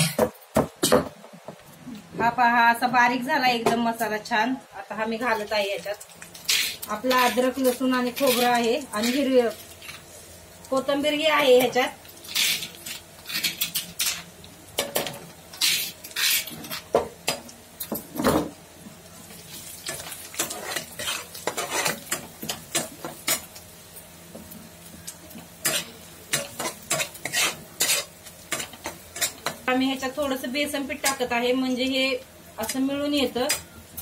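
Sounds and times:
food sizzling in oil: 0:03.2 - 0:34.0
metal spatula scraping a pan: 0:06.4 - 0:10.0, 0:12.2 - 0:16.9, 0:19.9 - 0:23.5, 0:25.6 - 0:29.6.

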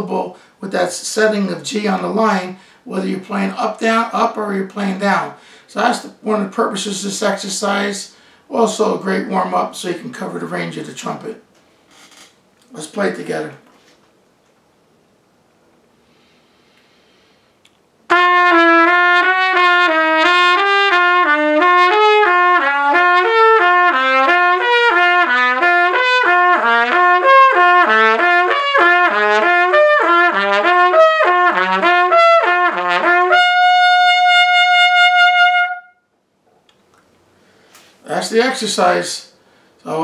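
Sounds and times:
trumpet playing: 0:18.1 - 0:36.1.

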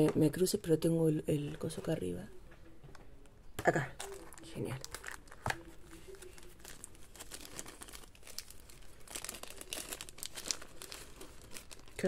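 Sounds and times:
paper rustling and crinkling: 0:04.0 - 0:12.0.

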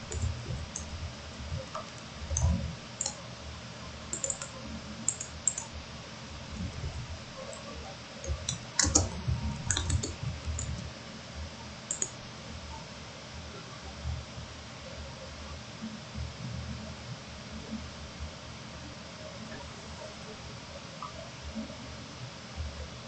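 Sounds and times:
computer keyboard keystrokes: 0:00.0 - 0:00.9, 0:01.6 - 0:03.2, 0:04.1 - 0:05.7, 0:07.5 - 0:10.9, 0:11.9 - 0:12.2
mouse clicks: 0:01.7 - 0:03.2, 0:04.1 - 0:05.7, 0:08.2 - 0:10.8, 0:11.9 - 0:12.2.

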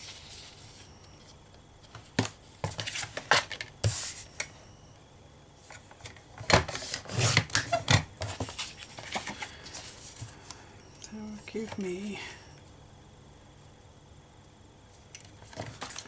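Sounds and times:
paper rustling: 0:08.2 - 0:10.3, 0:15.4 - 0:16.0.

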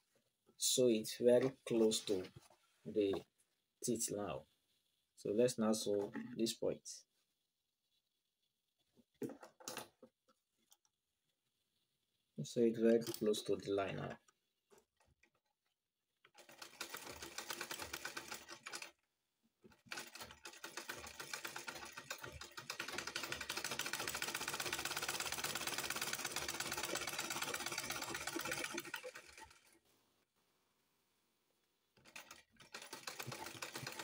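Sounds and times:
sewing machine clattering: 0:12.9 - 0:13.5, 0:16.3 - 0:18.9, 0:19.7 - 0:29.8, 0:32.0 - 0:34.0.

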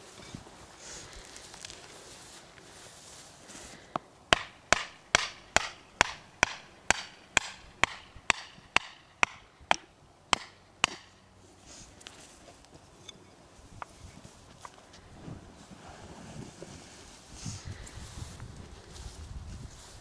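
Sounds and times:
mallet knocking wooden tent peg: 0:04.3 - 0:11.1.

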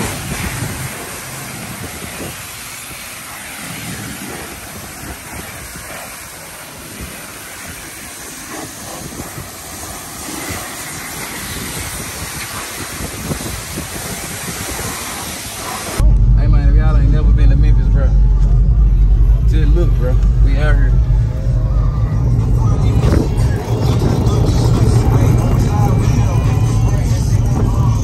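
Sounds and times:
pressure wand spraying water: 0:00.0 - 0:16.0.

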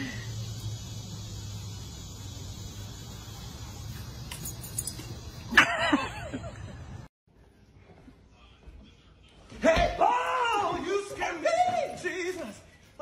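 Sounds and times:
dog tags and leash jingling: 0:03.9 - 0:05.6.

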